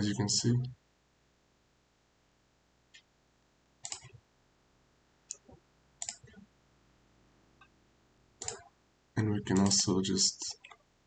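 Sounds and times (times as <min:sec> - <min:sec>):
computer mouse clicks: 0:03.8 - 0:04.2, 0:05.3 - 0:06.4, 0:08.4 - 0:08.7, 0:09.5 - 0:10.8.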